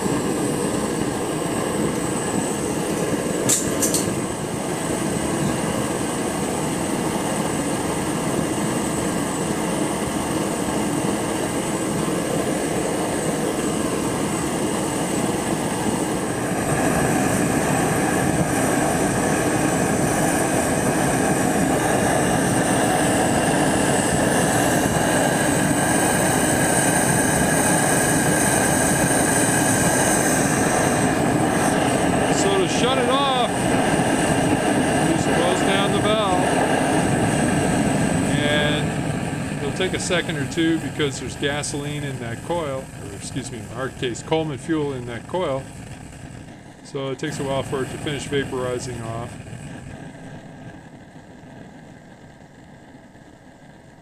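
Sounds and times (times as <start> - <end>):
burner flame rushing: 0.0 - 54.0
sharp click: 3.0 - 4.1.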